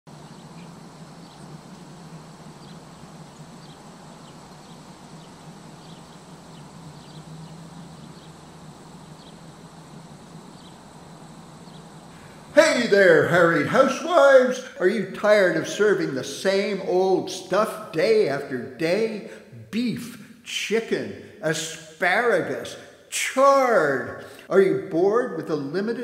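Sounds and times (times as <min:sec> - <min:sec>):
low hum: 0:00.1 - 0:14.0
high falling chirps: 0:00.1 - 0:16.0
even hiss: 0:00.1 - 0:25.7.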